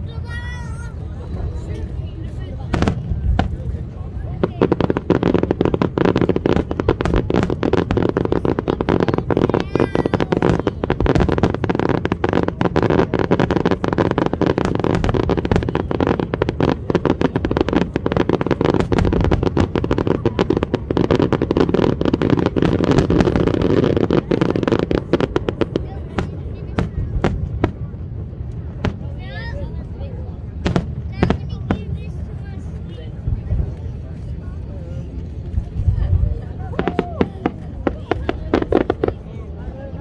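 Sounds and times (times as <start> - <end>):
fireworks crackling pops: 2.6 - 29.2, 30.6 - 32.8, 35.2 - 39.5.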